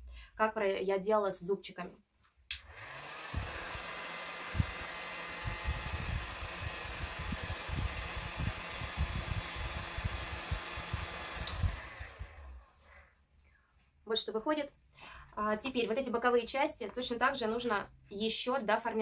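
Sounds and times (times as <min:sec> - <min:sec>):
heat gun blowing hot air: 0:02.5 - 0:13.1.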